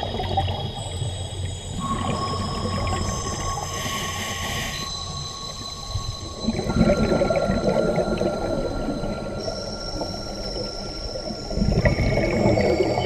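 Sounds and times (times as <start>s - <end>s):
underwater bubbles gurgling: 0.0s - 4.9s, 5.6s - 13.0s.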